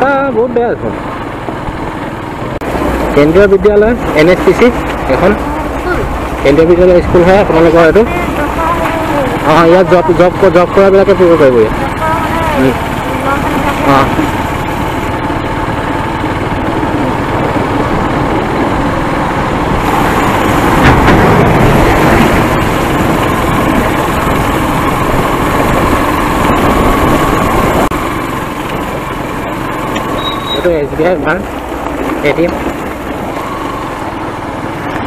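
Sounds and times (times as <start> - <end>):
road noise on dirt road: 0.0 - 35.0
small vehicle engine running: 0.0 - 35.0.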